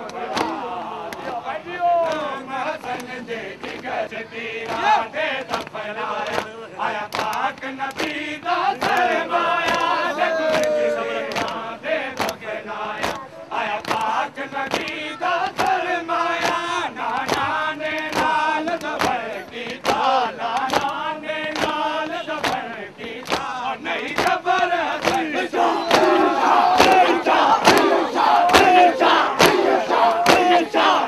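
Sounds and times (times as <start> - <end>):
hands slapping chests: 0.0 - 1.4, 5.5 - 6.5, 7.1 - 11.6, 12.2 - 13.2, 13.8 - 15.8, 16.4 - 23.5, 24.1 - 25.3, 25.9 - 31.0
men chanting a lament in unison: 0.0 - 31.0.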